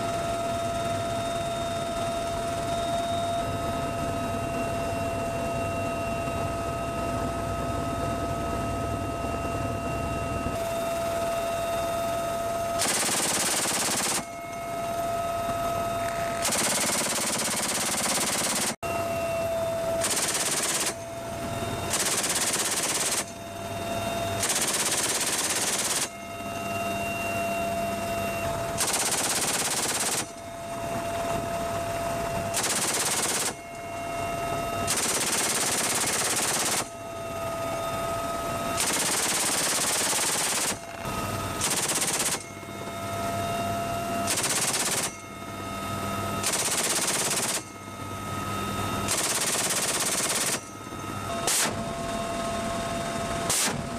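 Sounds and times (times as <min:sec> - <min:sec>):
helicopter turbine whine and hum: 0:00.0 - 0:53.9
machine gun bursts: 0:12.8 - 0:14.3, 0:16.4 - 0:18.8, 0:20.0 - 0:21.0, 0:21.9 - 0:23.3, 0:24.4 - 0:26.1, 0:28.8 - 0:30.3, 0:32.6 - 0:33.6, 0:34.9 - 0:36.9, 0:38.8 - 0:40.9, 0:41.6 - 0:42.4, 0:44.3 - 0:45.2, 0:46.4 - 0:47.7, 0:49.1 - 0:50.7.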